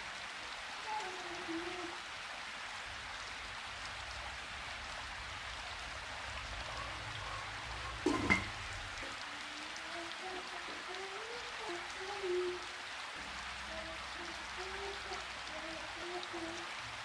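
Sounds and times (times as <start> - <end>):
steady hiss: 0.0 - 17.0
metal lid clinking onto pot: 8.1 - 8.5.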